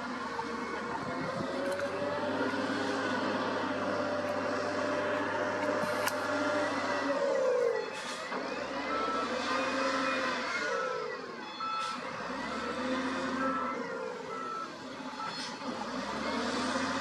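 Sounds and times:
diesel engine revving: 0.0 - 17.0
reversing alarm beeping: 6.2 - 17.0.

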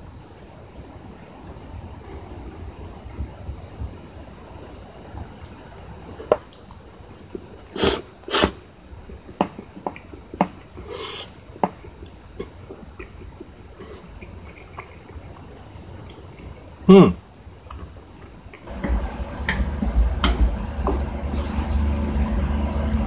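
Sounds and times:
slurping noodles: 7.7 - 8.6, 10.7 - 15.4
wet mouth clicks: 9.5 - 15.3.

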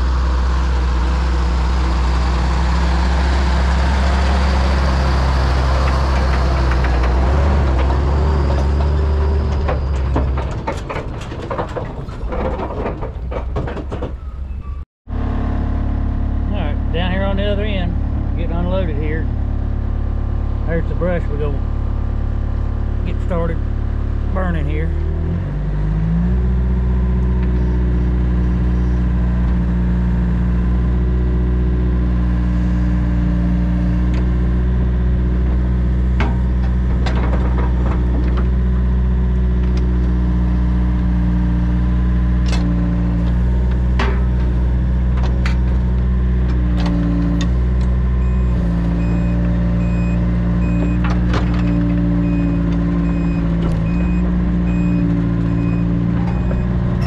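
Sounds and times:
excavator diesel engine running: 0.0 - 57.0
backup alarm beeping: 48.2 - 56.8.

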